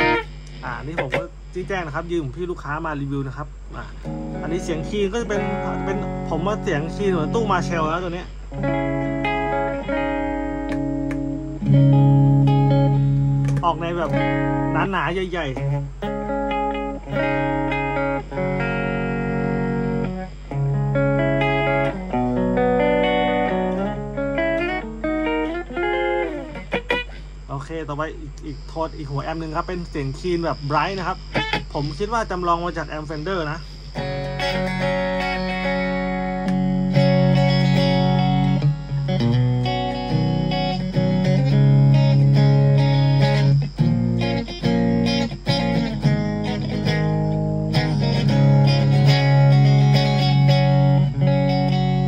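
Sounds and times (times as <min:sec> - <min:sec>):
electric guitar chords: 0:00.0 - 0:01.5, 0:03.9 - 0:27.5, 0:31.2 - 0:31.7, 0:33.9 - 0:52.0.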